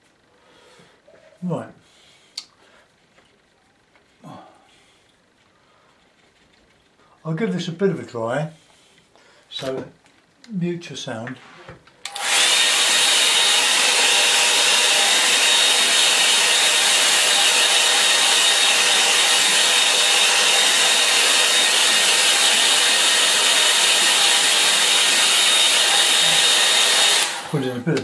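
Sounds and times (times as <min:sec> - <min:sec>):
hair dryer blowing: 0:12.0 - 0:28.0.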